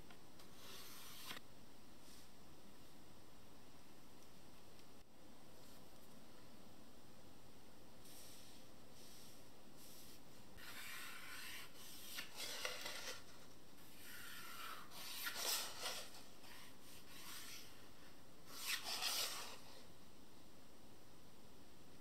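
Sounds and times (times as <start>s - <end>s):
ruler sliding on board: 0.5s - 1.4s, 18.5s - 19.6s
pencil scratching along ruler: 9.8s - 13.2s, 13.9s - 17.8s, 18.5s - 19.7s.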